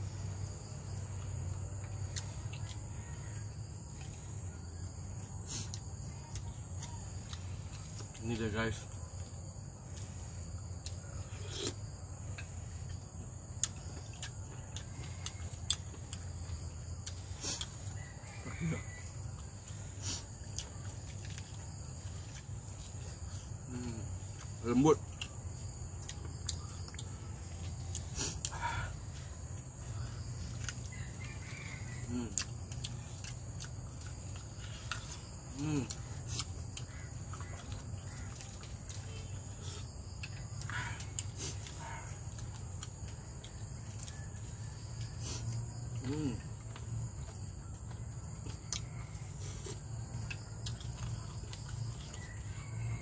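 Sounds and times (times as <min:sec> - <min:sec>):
insects buzzing: 0:00.0 - 0:53.0
small clicks from eating: 0:40.1 - 0:52.5.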